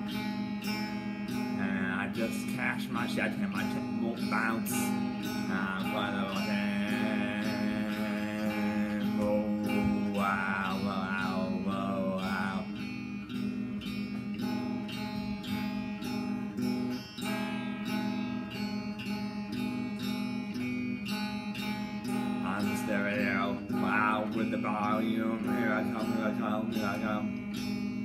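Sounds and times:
electric guitar strumming: 0.0s - 28.0s
person singing: 1.4s - 12.9s, 22.1s - 27.6s.

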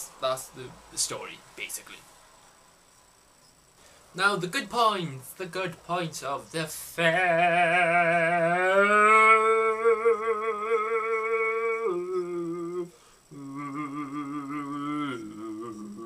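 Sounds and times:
man singing with vibrato: 6.0s - 16.0s.

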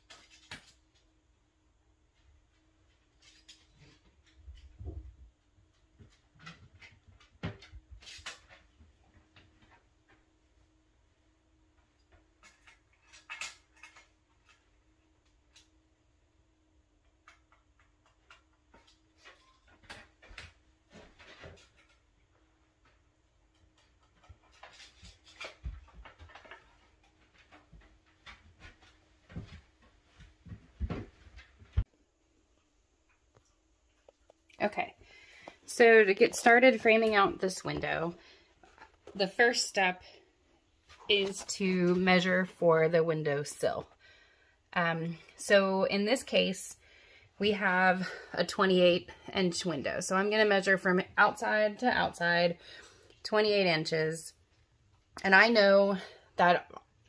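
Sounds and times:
tools being handled: 12.3s - 14.7s.

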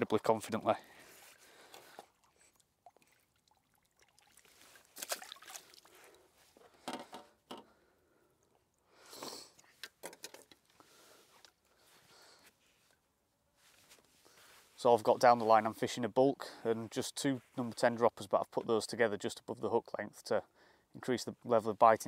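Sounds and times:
fishing tackle handling noises: 1.0s - 3.2s, 4.4s - 7.8s, 8.4s - 11.8s
small splashes in water: 1.3s - 6.2s.

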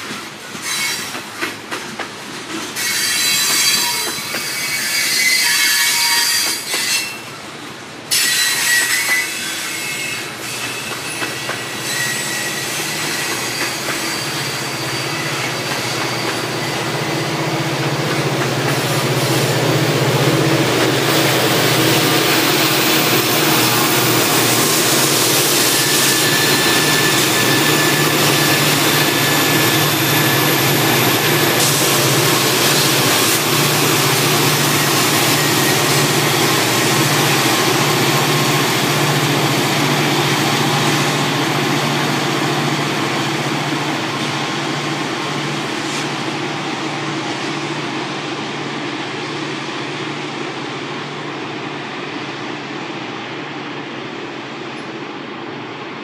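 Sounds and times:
diesel locomotives at full throttle: 13.2s - 56.0s.

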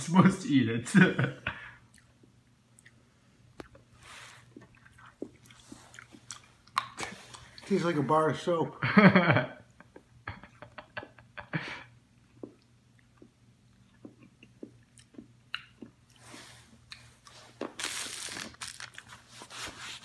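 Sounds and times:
rustling: 16.2s - 20.0s.

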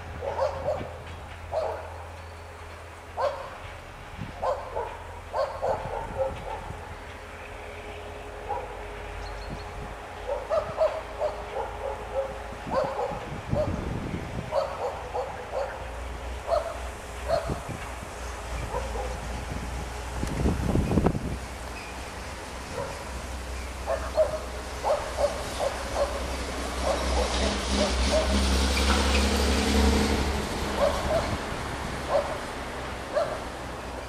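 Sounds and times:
passenger train rumble: 0.0s - 34.0s
dog barking: 0.2s - 0.9s, 1.5s - 1.9s, 3.2s - 3.5s, 4.4s - 6.7s, 8.5s - 8.7s, 10.3s - 13.8s, 14.5s - 15.8s, 16.5s - 17.6s, 18.7s - 19.2s, 22.7s - 23.0s, 23.9s - 26.2s, 26.8s - 28.4s, 30.8s - 31.4s, 32.1s - 32.4s, 33.1s - 33.4s.

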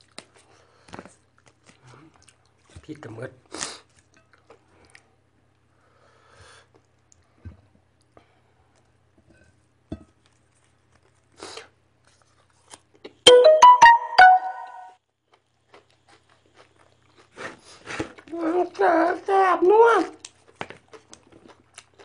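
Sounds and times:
electronic piano jingle: 13.3s - 14.9s.

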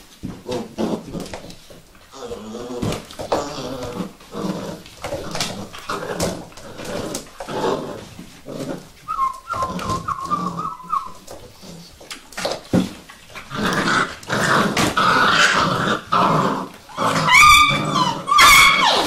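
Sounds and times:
scuffling: 2.8s - 13.6s
puppies whimpering and yipping: 9.0s - 11.7s, 16.9s - 19.0s
puppy high squeals: 9.1s - 11.3s, 16.9s - 19.0s.

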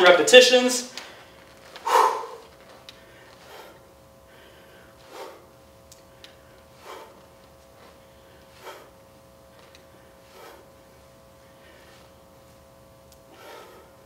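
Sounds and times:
man breathing out hard: 1.8s - 2.4s, 13.3s - 14.0s.

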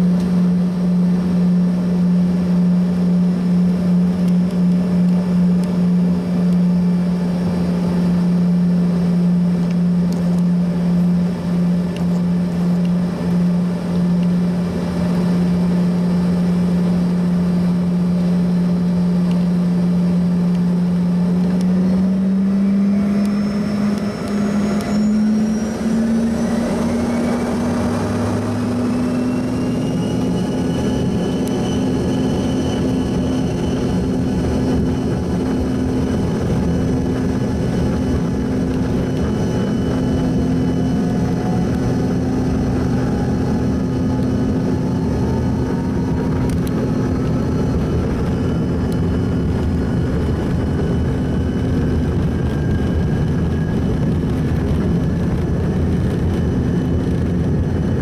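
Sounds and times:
engine whine rising in pitch: 0.0s - 58.0s
jet engines humming: 0.0s - 58.0s.

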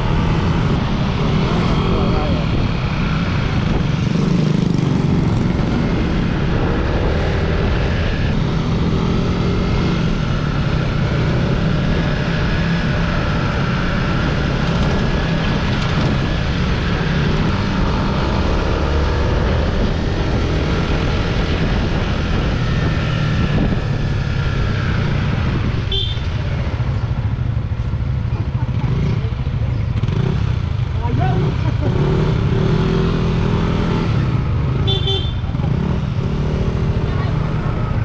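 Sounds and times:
wind rush on microphone: 0.0s - 26.8s
motorcycle engine running: 0.0s - 38.0s.

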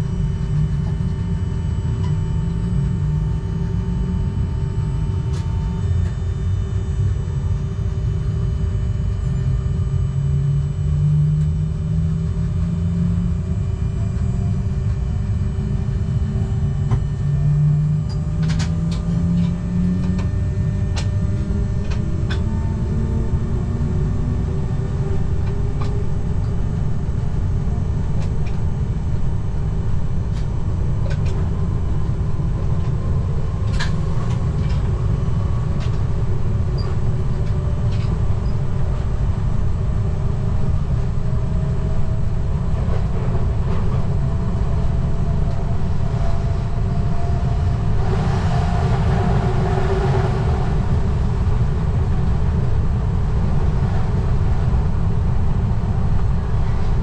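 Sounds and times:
train wheels rumbling on rail: 13.4s - 57.0s.

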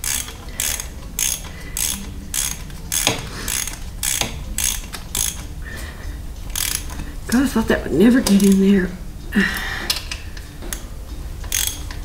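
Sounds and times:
hand ratchet clicking: 0.0s - 5.6s, 6.4s - 7.2s, 8.2s - 8.7s, 9.6s - 12.0s.

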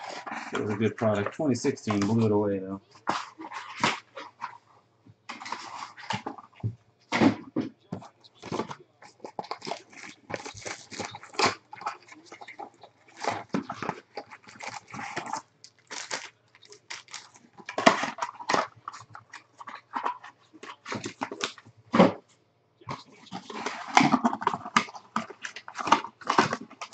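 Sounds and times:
cardboard box rustling: 5.3s - 22.2s
foil packs crinkling: 8.3s - 21.6s.

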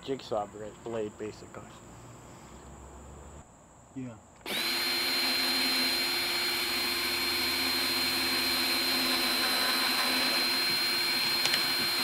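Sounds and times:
cordless drill boring through plastic: 4.4s - 12.0s.

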